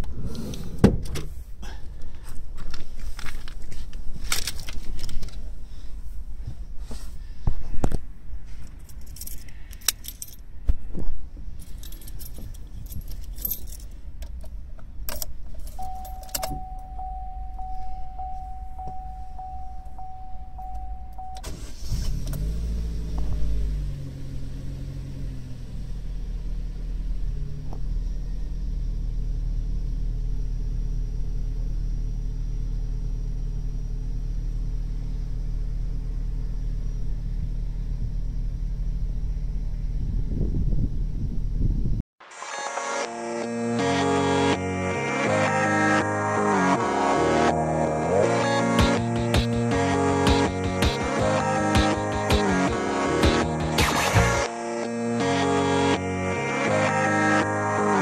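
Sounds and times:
keys jangling: 0:04.2 - 0:05.4, 0:08.6 - 0:10.5, 0:11.5 - 0:14.0, 0:15.1 - 0:16.6
car engine starting and idling: 0:08.2 - 0:41.8, 0:43.5 - 0:58.0.

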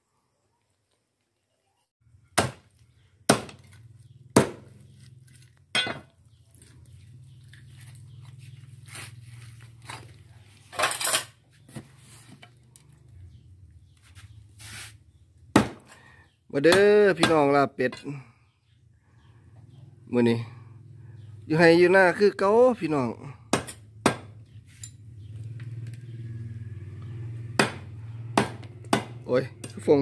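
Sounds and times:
knife chopping on wooden block: 0:03.3 - 0:04.8, 0:15.5 - 0:15.9, 0:23.5 - 0:24.4, 0:27.6 - 0:29.2.

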